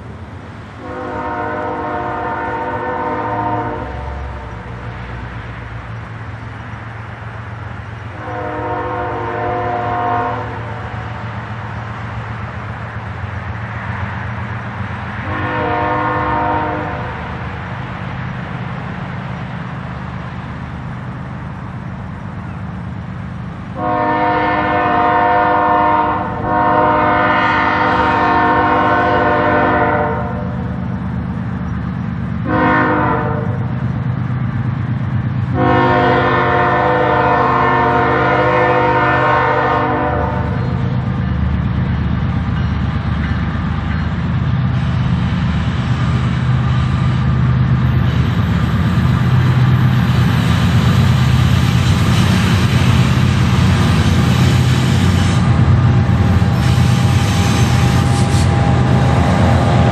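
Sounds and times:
locomotive air horn blasts: 0.8 - 4.8, 8.2 - 11.0, 15.2 - 17.3, 23.8 - 30.6, 32.4 - 33.7, 35.5 - 41.0, 51.9 - 59.8.

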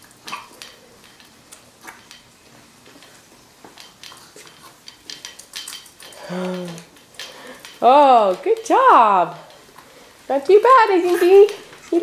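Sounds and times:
light clicks and taps of metal frame: 0.5 - 9.9.

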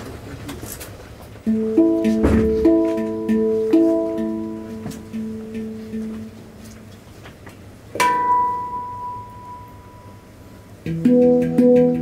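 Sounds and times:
handpan notes ringing: 1.4 - 7.2, 7.9 - 12.0
soft taps on handpan: 1.5 - 8.4.

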